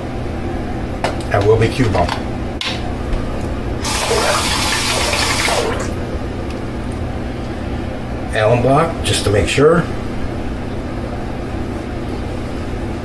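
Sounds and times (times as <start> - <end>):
water running from tap: 3.8 - 6.0.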